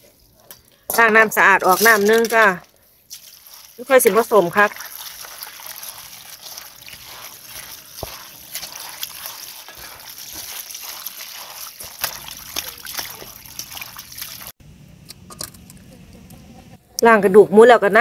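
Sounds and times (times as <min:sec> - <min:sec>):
hands squeezing wet leaves: 0:01.6 - 0:14.6
water running from a hose: 0:01.6 - 0:14.6
water splashing: 0:01.6 - 0:14.6.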